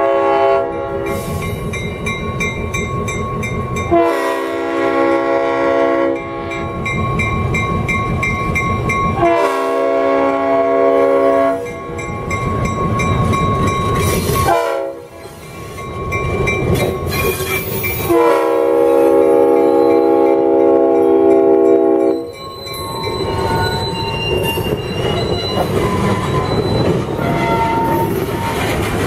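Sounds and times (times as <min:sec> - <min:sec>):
locomotive air horn blasts: 0:00.0 - 0:01.4, 0:03.9 - 0:06.7, 0:09.2 - 0:11.8, 0:14.4 - 0:15.2, 0:18.0 - 0:22.2, 0:27.2 - 0:28.2
locomotive engine and wheels rumbling: 0:00.0 - 0:29.0
crossing bell dinging: 0:00.6 - 0:05.0, 0:06.0 - 0:10.2, 0:11.0 - 0:28.8.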